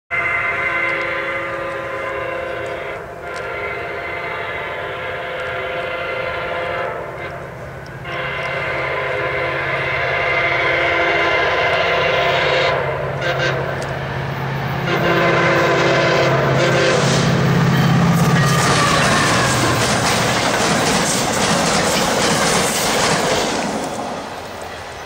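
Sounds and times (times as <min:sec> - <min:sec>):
train horn long blasts: 0:00.1 - 0:20.0
low locomotive engine: 0:00.1 - 0:25.0.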